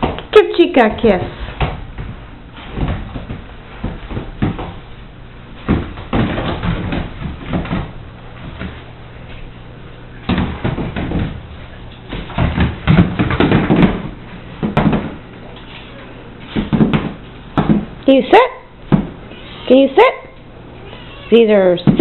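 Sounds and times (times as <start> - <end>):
footsteps on tile floor: 1.1 - 18.0.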